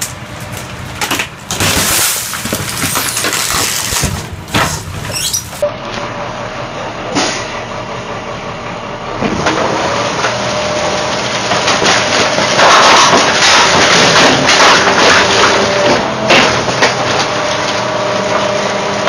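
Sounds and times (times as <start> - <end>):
packer blade scraping and crackling: 0.0 - 5.6
garbage truck engine and hydraulics: 0.0 - 19.0.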